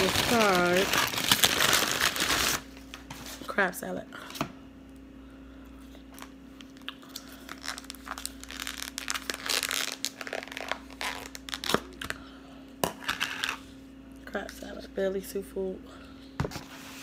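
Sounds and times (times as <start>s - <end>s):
plastic crinkling and tearing: 0.0s - 2.7s, 6.1s - 12.1s.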